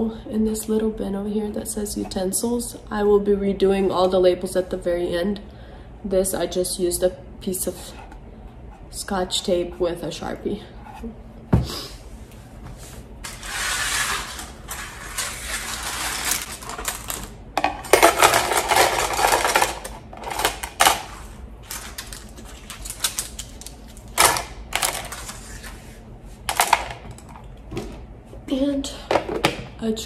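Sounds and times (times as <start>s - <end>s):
plastic utensils clattering into bin: 13.3s - 25.4s, 26.5s - 27.9s.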